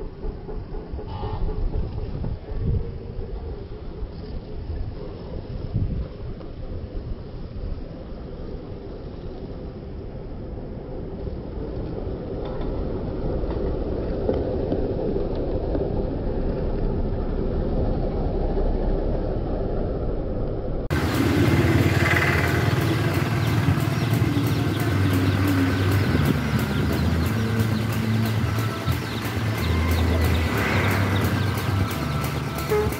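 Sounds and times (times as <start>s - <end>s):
road traffic: 0.0s - 32.9s
wind: 0.0s - 32.9s
music with a steady beat: 22.8s - 32.9s.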